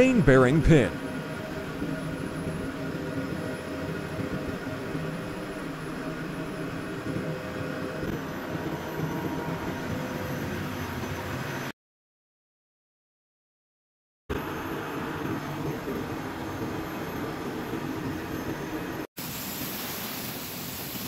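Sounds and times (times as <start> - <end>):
engine-room machinery humming: 0.0 - 11.7, 14.3 - 19.1.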